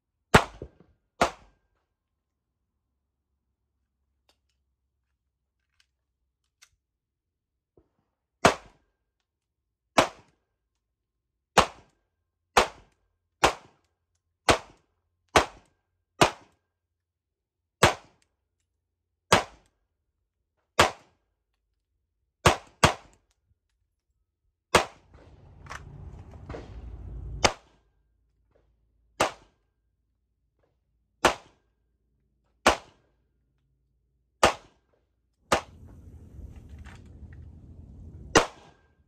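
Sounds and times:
pistol shots: 34.4s - 34.7s.

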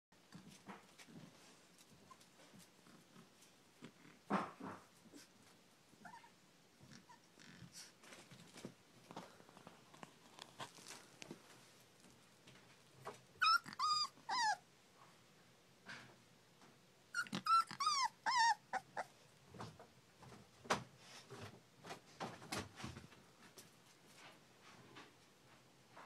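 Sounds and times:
puppies whining: 6.0s - 7.6s, 13.4s - 14.6s, 17.1s - 19.2s
puppies scuffling on blanket: 7.6s - 13.6s.

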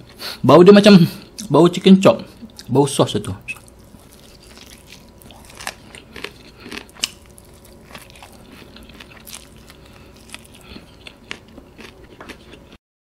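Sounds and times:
person chewing food: 2.4s - 2.7s, 3.5s - 12.8s.

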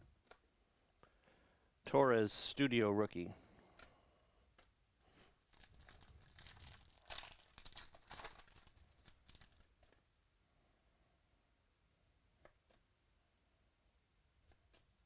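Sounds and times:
foil wrapper tearing and crinkling: 5.5s - 9.7s.

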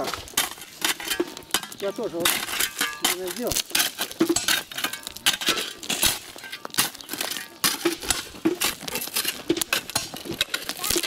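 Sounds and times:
loose stones clinking: 0.0s - 11.0s
shovels scraping crushed stone: 0.0s - 11.0s.

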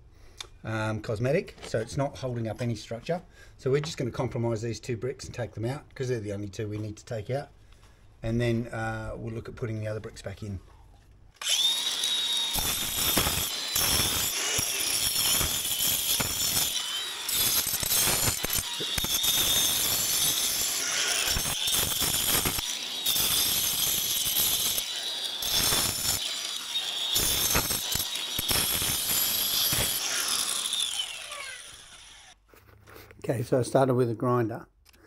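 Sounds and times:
angle grinder motor whine: 11.4s - 32.4s
disc grinding mortar: 11.4s - 32.4s.

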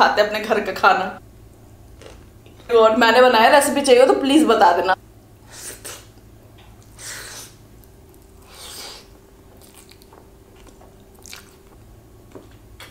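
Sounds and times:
wet mouth noises eating: 6.8s - 12.9s.

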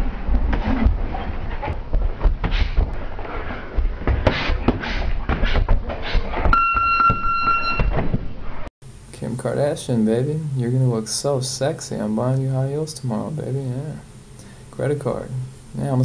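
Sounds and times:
feet moving on ring canvas: 0.0s - 6.6s
steady high beep: 6.5s - 7.9s.

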